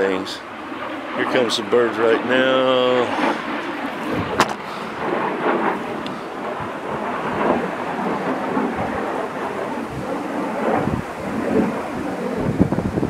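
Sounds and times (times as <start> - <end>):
thunderstorm rumbling and gusting: 0.0 - 13.0.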